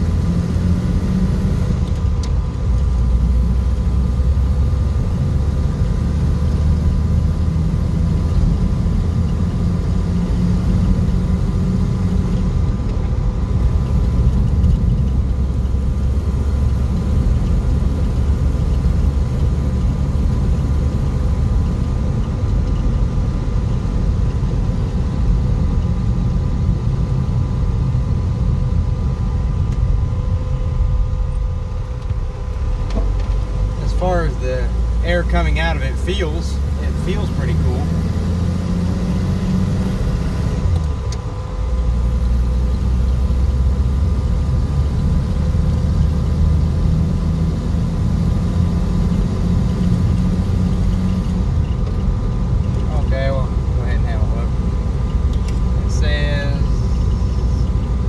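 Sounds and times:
car engine and road rumble: 0:00.0 - 0:58.0
faint whining tones: 0:47.1 - 0:58.0.

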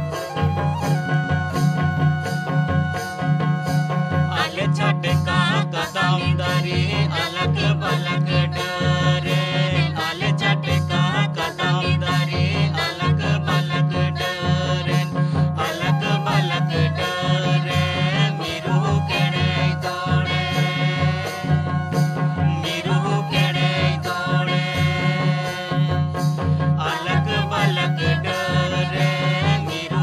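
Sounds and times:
instrumental accompaniment: 0:00.0 - 0:30.0
steady drum beat: 0:00.0 - 0:30.0
voices singing folk song: 0:03.8 - 0:30.0.

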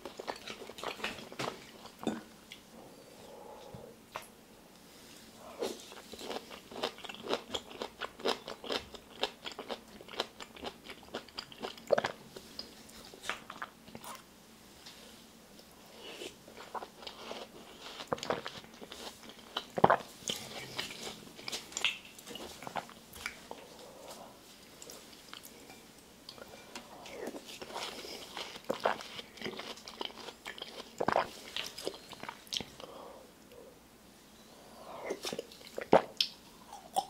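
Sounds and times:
crunching and chewing fruit: 0:00.0 - 0:02.0, 0:05.6 - 0:14.2, 0:16.0 - 0:32.9.

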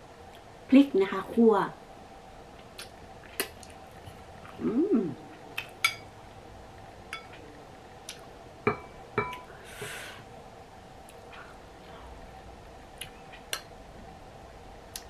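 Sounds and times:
person humming mm: 0:04.5 - 0:05.3
metal spoon clinking on bowl: 0:07.1 - 0:07.3.

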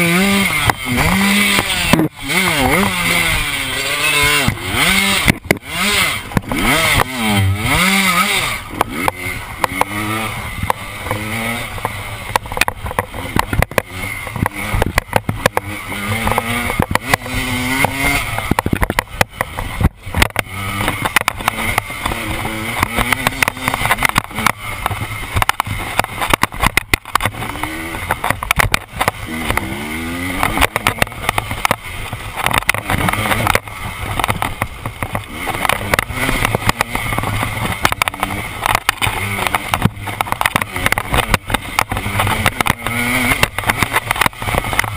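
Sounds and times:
bike knocking and rattling on bumps: 0:00.0 - 0:44.9
dirt bike engine revving: 0:00.0 - 0:44.9.

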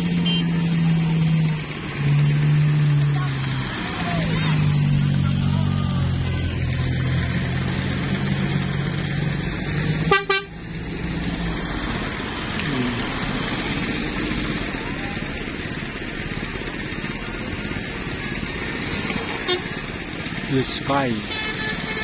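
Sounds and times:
engines and tyres on road: 0:00.0 - 0:22.0
vehicle horn low tones: 0:00.2 - 0:00.6, 0:10.1 - 0:10.6, 0:19.4 - 0:19.8, 0:21.2 - 0:22.0.

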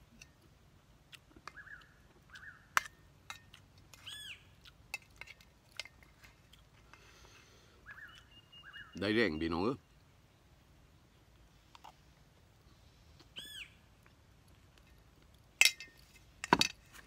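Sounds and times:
bird chirping: 0:01.4 - 0:02.8, 0:04.0 - 0:04.6, 0:07.8 - 0:11.3, 0:12.7 - 0:13.9
bird whistled call: 0:01.5 - 0:02.7, 0:07.8 - 0:09.5, 0:13.4 - 0:13.8.

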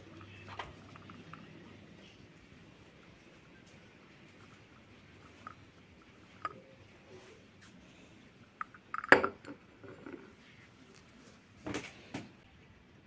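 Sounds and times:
china cup clinking on saucer: 0:08.9 - 0:10.1.

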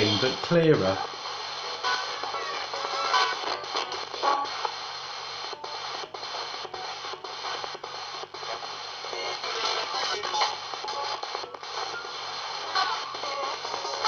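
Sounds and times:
fragments of broadcast sound: 0:00.0 - 0:14.0
radio static: 0:00.0 - 0:14.0.

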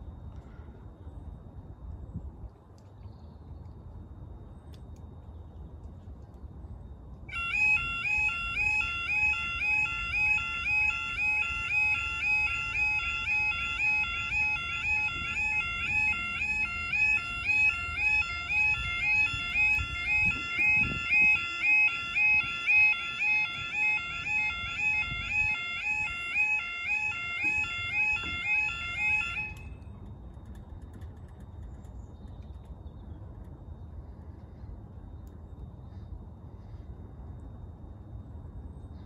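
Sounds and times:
level crossing warning alarm: 0:07.2 - 0:30.0.

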